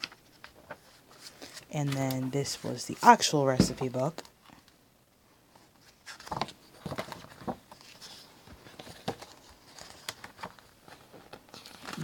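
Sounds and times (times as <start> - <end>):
paper pages turning: 0.0 - 3.3, 5.8 - 12.0.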